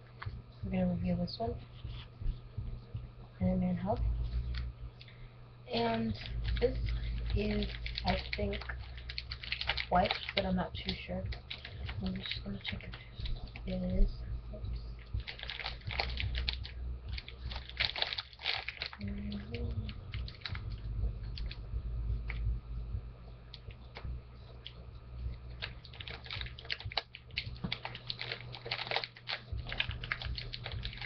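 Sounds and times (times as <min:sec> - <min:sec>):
steady low hum: 0:00.0 - 0:31.0
tissue packet wrapping rustling: 0:05.7 - 0:13.8, 0:15.2 - 0:20.7, 0:25.5 - 0:31.0.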